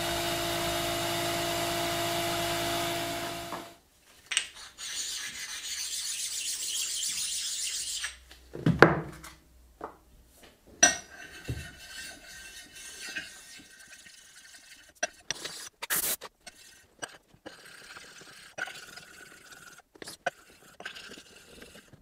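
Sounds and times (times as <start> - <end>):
metal parts scraping on workbench: 10.8 - 15.7.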